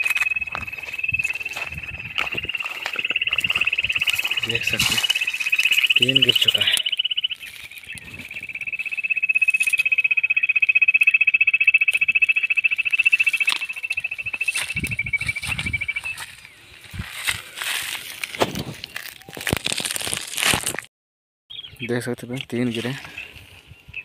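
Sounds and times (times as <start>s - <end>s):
high-pitched electronic trill: 0.0s - 7.2s.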